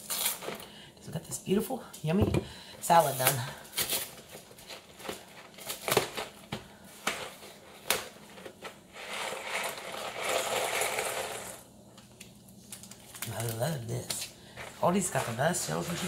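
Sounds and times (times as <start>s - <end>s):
foil pouch crinkling: 12.1s - 16.0s.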